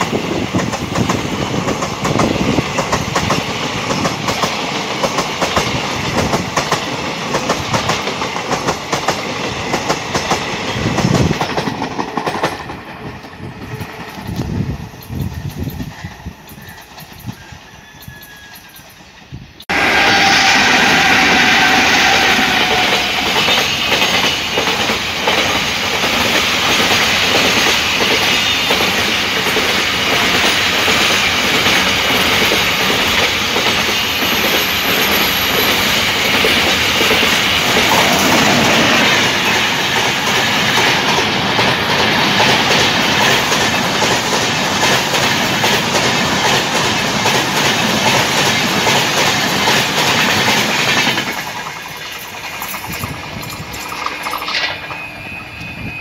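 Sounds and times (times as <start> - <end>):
freight train passing: 0.0 - 56.0
passenger train passing: 0.0 - 56.0
wheels clattering over rail joints: 23.5 - 55.1.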